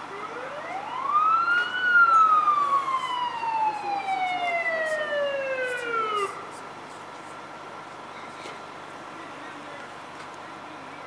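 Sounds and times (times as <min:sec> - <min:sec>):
emergency siren wailing: 0:00.0 - 0:06.5.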